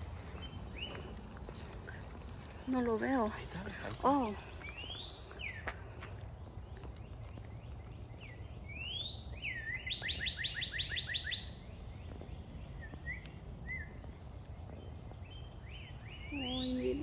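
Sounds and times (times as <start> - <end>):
songbird singing whistled notes: 0.4 - 1.1, 4.4 - 5.9, 6.7 - 17.0.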